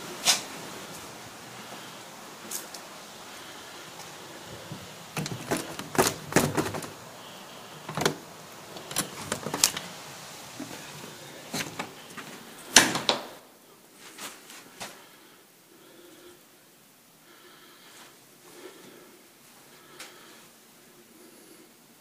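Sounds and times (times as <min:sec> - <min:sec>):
door knob turning: 0:05.2 - 0:07.0
door knocks and clatters: 0:05.2 - 0:07.0.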